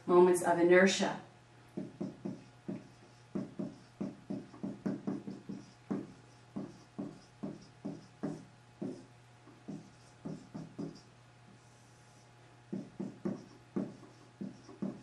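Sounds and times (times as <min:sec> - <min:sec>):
faint low hum: 0:00.0 - 0:15.0
marker writing on whiteboard: 0:01.7 - 0:15.0.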